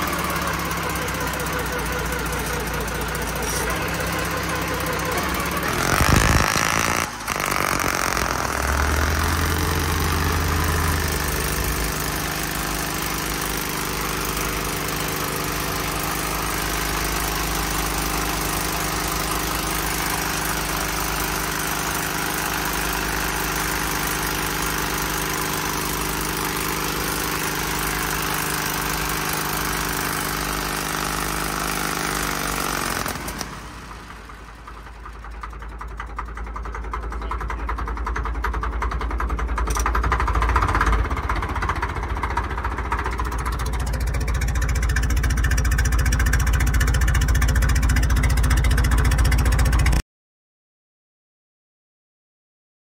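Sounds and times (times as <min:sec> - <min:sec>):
diesel engine running: 0:00.0 - 0:50.0
engine winding down: 0:00.0 - 0:50.0.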